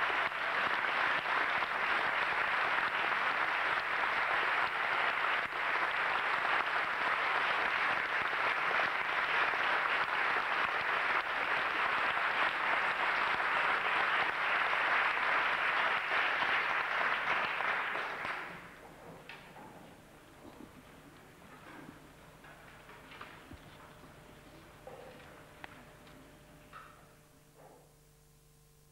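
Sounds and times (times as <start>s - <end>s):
audience applauding: 0.0s - 18.8s.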